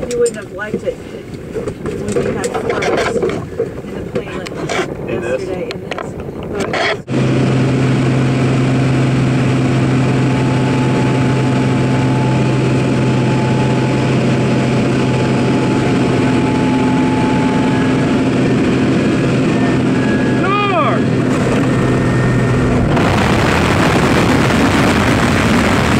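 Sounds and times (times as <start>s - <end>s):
wind noise rushing: 2.3s - 25.9s
aircraft engine and propeller drone: 5.6s - 25.9s.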